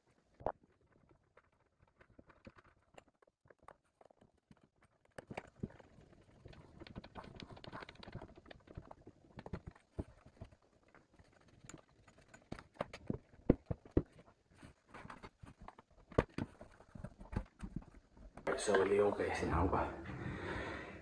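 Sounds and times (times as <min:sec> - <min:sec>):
knocks and clunks of pipework: 0:05.1 - 0:19.0.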